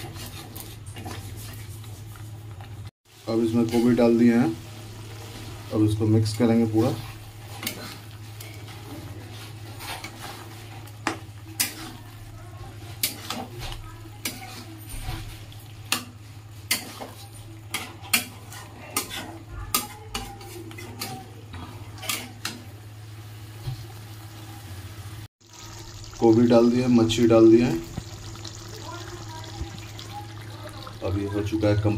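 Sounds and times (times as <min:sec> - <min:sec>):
metal spatula scraping pan: 0:06.6 - 0:12.1, 0:12.8 - 0:22.7.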